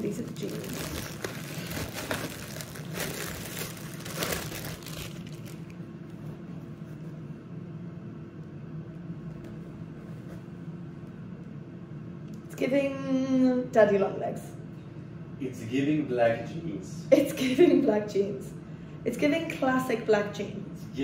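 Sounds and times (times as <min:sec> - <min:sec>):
plastic bag crinkling: 0:00.0 - 0:05.8
steady low hum: 0:00.0 - 0:21.0.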